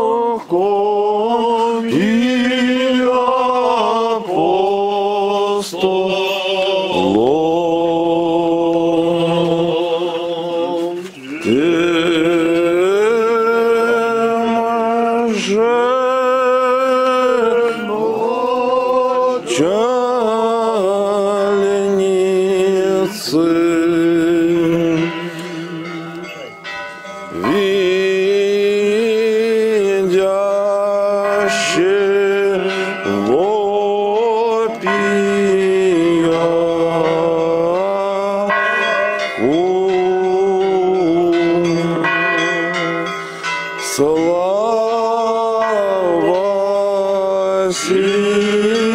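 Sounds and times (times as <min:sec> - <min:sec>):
men singing church chant: 0:00.0 - 0:26.6, 0:27.3 - 0:48.9.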